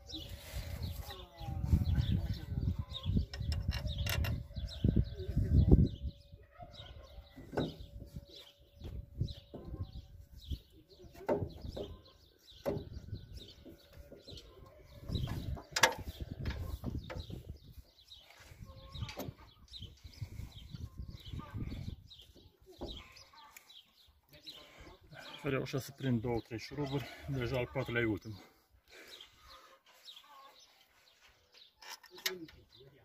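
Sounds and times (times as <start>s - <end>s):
birds chirping: 0.0s - 33.0s
metal clinks and knocks: 3.3s - 4.6s.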